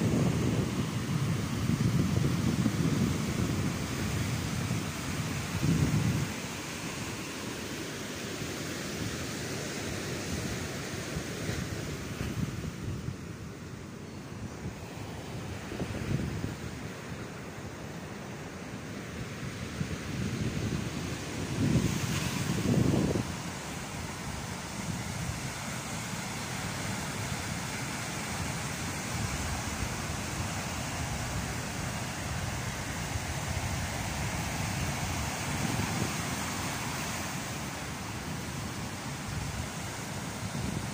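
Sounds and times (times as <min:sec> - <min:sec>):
wind buffeting microphone: 0:00.0 - 0:06.8, 0:14.3 - 0:17.1, 0:19.6 - 0:25.6, 0:29.0 - 0:37.0
ocean surf breaking: 0:00.0 - 0:40.9.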